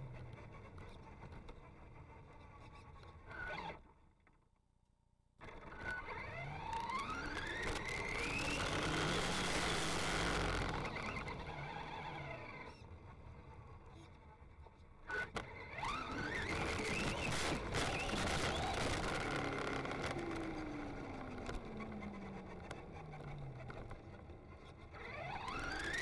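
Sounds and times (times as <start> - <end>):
electric motor whining: 6.1 - 12.8.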